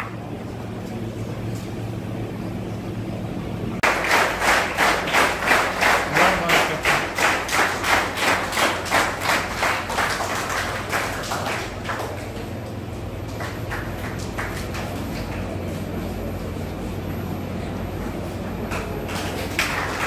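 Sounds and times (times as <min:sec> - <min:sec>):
audience clapping in unison: 0:03.8 - 0:15.8, 0:18.7 - 0:20.0.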